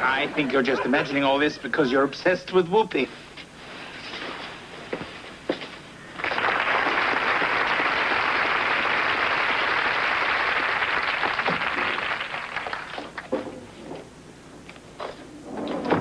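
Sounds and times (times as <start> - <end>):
audience applauding: 6.1 - 13.3.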